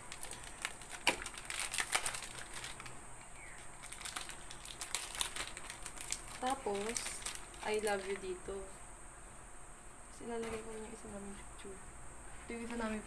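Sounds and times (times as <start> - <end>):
crinkling: 0.0 - 8.4.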